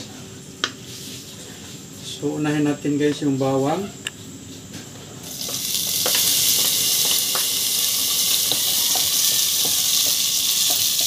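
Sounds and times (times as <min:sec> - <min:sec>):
garlic sizzling in hot oil: 0:05.2 - 0:11.0.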